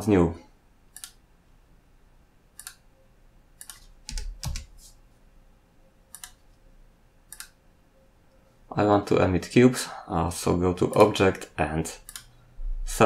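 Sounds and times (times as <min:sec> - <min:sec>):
computer mouse clicks: 0:00.9 - 0:01.2, 0:02.6 - 0:02.8, 0:03.6 - 0:04.8, 0:06.1 - 0:06.6, 0:07.3 - 0:07.6, 0:10.8 - 0:11.2, 0:12.0 - 0:12.4.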